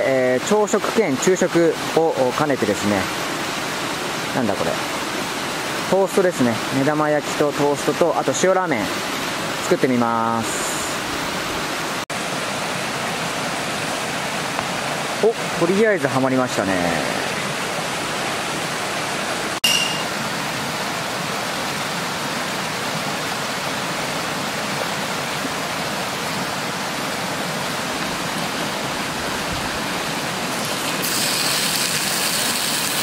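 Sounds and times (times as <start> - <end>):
bread frying in oil: 30.5 - 33.0
bacon sizzling in hot pan: 30.6 - 33.0.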